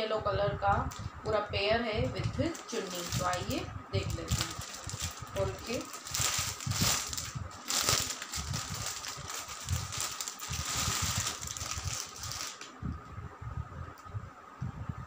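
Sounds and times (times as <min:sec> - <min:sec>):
plastic bag crinkling: 0:02.1 - 0:12.7.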